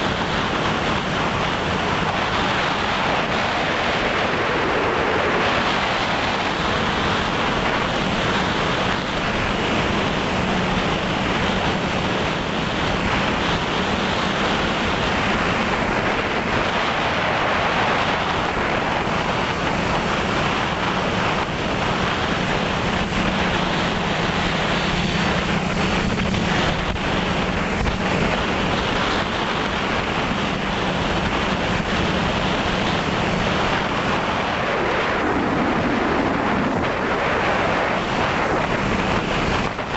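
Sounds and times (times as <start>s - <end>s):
drone propeller noise: 0.0s - 39.9s
wind rushing: 0.0s - 39.9s
low wavering hum: 17.3s - 33.9s.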